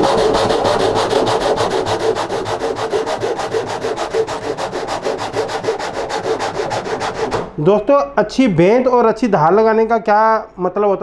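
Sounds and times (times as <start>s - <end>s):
hand saw cutting wood: 0.0s - 7.6s.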